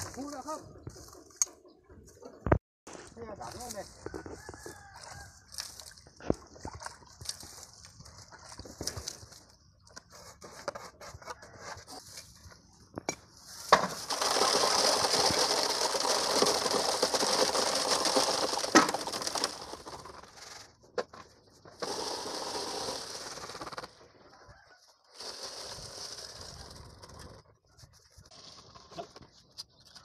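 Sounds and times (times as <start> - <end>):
trowel scraping mix in bucket: 13.5 - 20.7, 21.6 - 24.0, 25.1 - 27.4
wet concrete pouring: 14.0 - 20.3, 21.8 - 23.9, 25.2 - 27.3.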